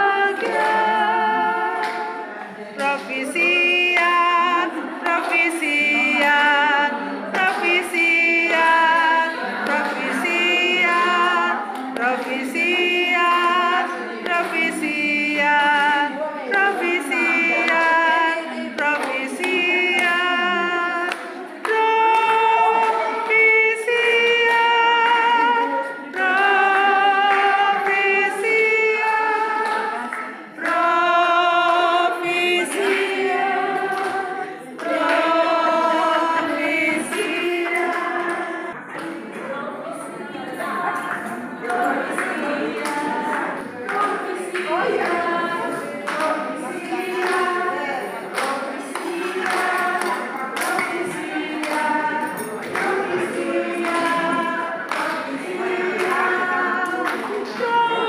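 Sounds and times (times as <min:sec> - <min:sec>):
choir singing a cappella: 0:00.0 - 0:58.0.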